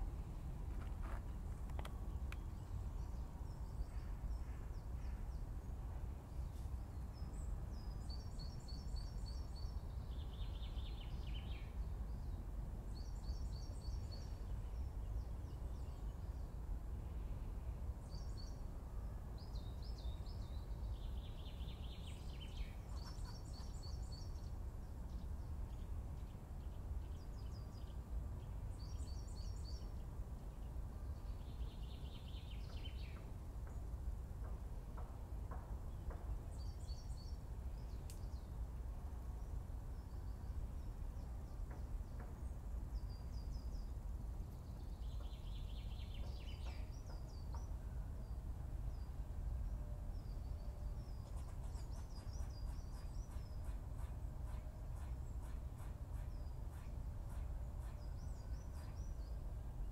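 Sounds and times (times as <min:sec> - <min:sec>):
steady low rumble: 0:00.0 - 0:07.8
songbirds singing: 0:00.7 - 0:59.9.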